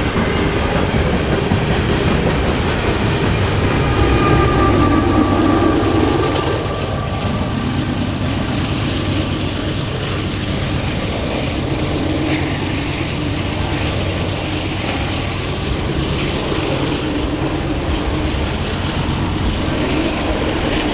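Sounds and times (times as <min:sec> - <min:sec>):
diesel locomotive passing: 0:00.0 - 0:20.9
freight train rumbling past: 0:00.0 - 0:20.9.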